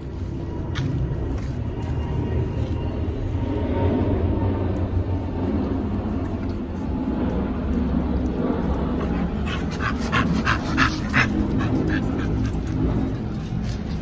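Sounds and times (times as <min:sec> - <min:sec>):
steady low rumble: 0:00.0 - 0:14.0
dog panting: 0:08.8 - 0:14.0.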